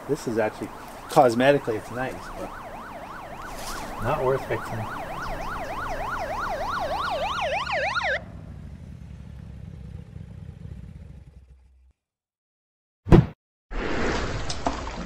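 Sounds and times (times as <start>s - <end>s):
emergency siren wailing: 0.0s - 8.5s.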